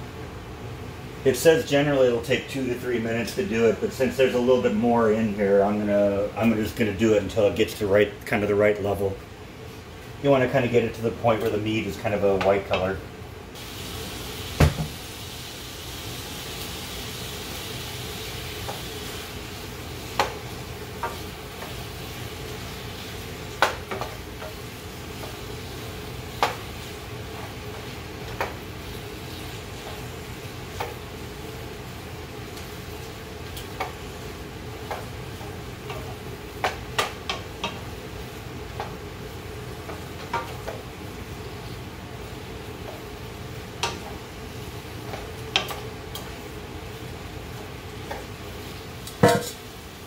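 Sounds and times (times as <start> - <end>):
chicken sizzling in oil: 13.6 - 50.0
wooden spoon knocking pan: 49.2 - 49.6.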